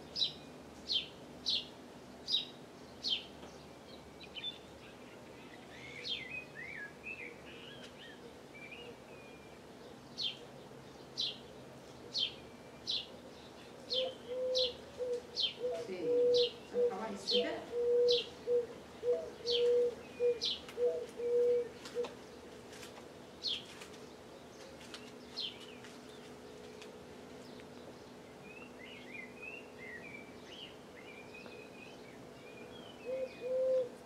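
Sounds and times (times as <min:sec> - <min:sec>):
soft twittering chatter: 0:00.0 - 0:34.0
bird hooting: 0:13.9 - 0:22.1, 0:33.0 - 0:34.0.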